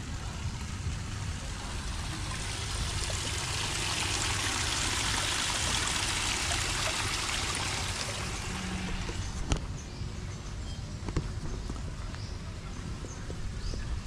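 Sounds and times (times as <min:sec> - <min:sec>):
running water: 0:00.0 - 0:09.7.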